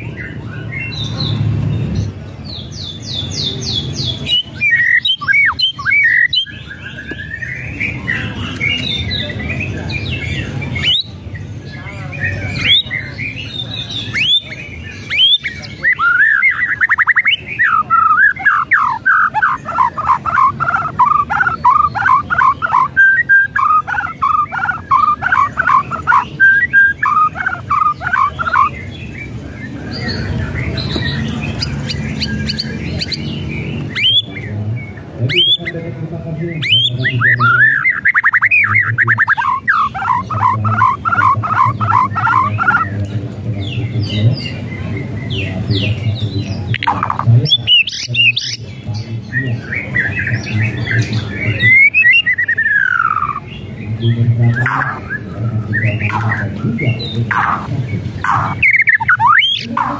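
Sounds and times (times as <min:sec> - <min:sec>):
bird singing: 0:00.0 - 0:59.9.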